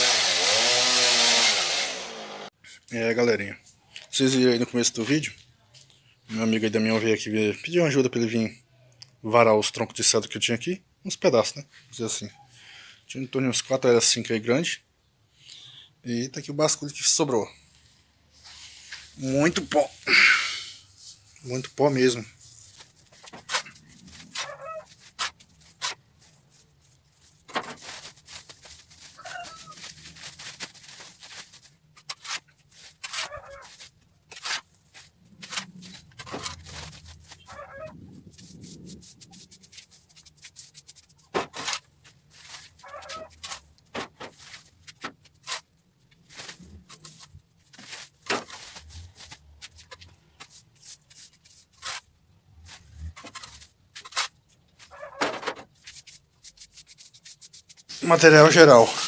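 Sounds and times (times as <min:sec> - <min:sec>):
sawdust rustling: 0:00.0 - 0:02.5, 0:17.7 - 0:59.0
shovel scraping concrete: 0:22.5 - 0:26.0, 0:27.4 - 0:37.8, 0:38.4 - 0:45.7, 0:46.3 - 0:55.1, 0:57.7 - 0:59.0.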